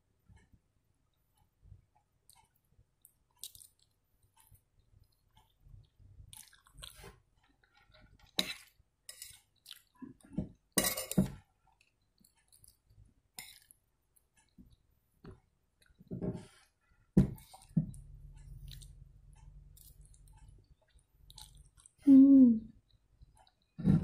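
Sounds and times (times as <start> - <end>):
person chewing: 2.2 - 10.3, 11.7 - 14.8, 17.3 - 22.0, 22.8 - 23.8.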